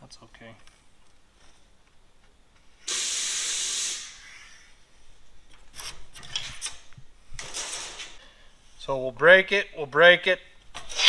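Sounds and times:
loud hiss: 0:02.8 - 0:04.8.

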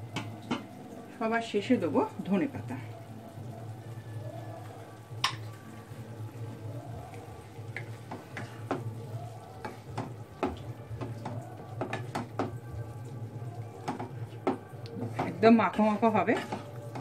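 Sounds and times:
spatula knocking against a pan: 0:07.8 - 0:09.0, 0:09.6 - 0:12.6, 0:13.8 - 0:15.5.

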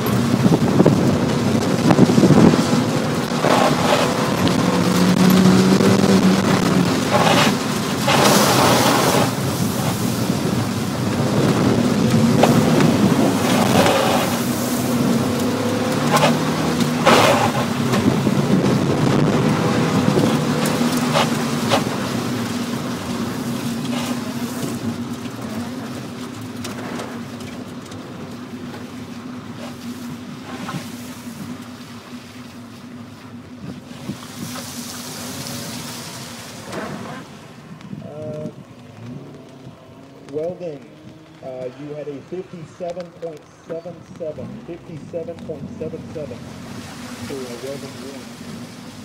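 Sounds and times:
car engine driving hard: 0:00.0 - 0:49.0
rain on a car: 0:00.0 - 0:49.0
tyre spray: 0:07.0 - 0:10.3, 0:16.0 - 0:17.7.

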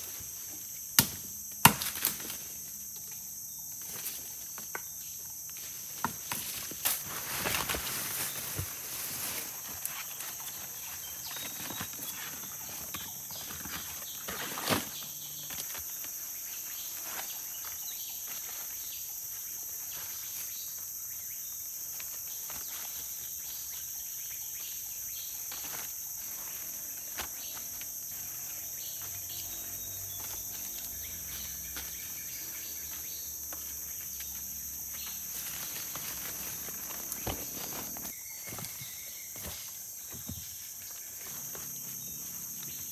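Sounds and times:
insects chorus: 0:00.0 - 0:42.9
knocks and rustles of handling: 0:35.4 - 0:41.8.

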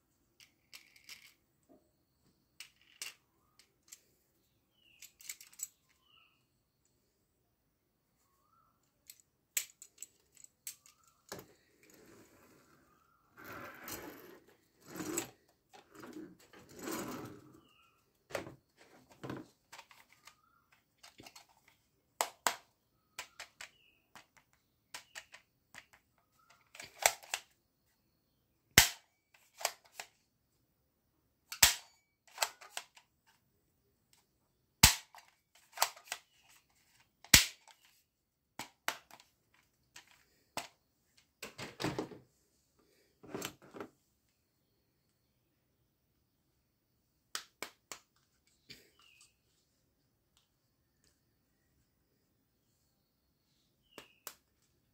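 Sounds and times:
plastic toys rattling: 0:00.4 - 0:01.4, 0:02.6 - 0:03.2, 0:04.9 - 0:05.8
toy shotgun action snapping: 0:37.3 - 0:37.7.

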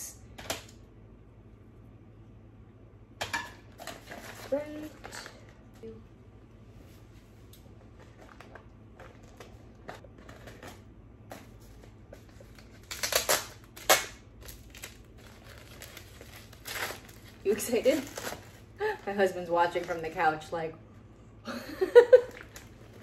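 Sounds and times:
paper sleeve crinkling: 0:07.9 - 0:20.5.

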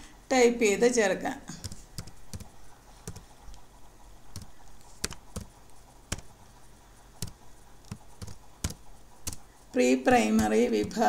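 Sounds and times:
keyboard key clicks: 0:07.2 - 0:09.5.

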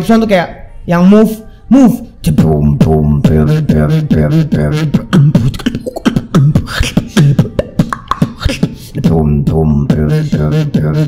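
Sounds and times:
beatboxing robot voice: 0:02.2 - 0:11.0.

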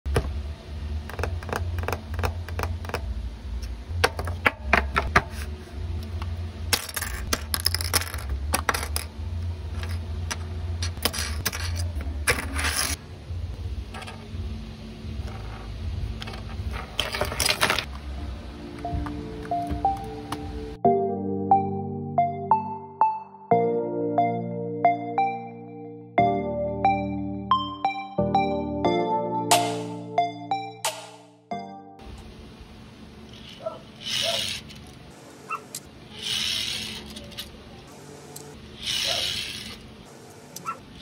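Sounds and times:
steady low hum: 0:00.1 - 0:21.0, 0:32.0 - 0:41.0
parts sliding and rustling: 0:09.7 - 0:13.0, 0:15.2 - 0:17.9, 0:33.3 - 0:37.6, 0:38.2 - 0:40.7.

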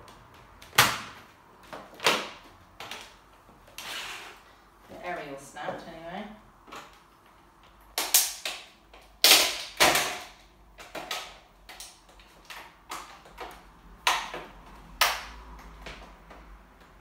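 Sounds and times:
plastic toy cracking under heel: 0:07.9 - 0:16.0.

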